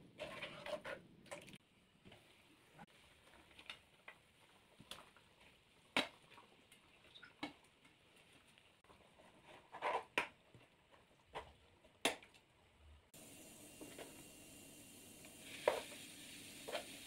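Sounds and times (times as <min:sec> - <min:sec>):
faint steady hiss: 0:13.0 - 0:17.0.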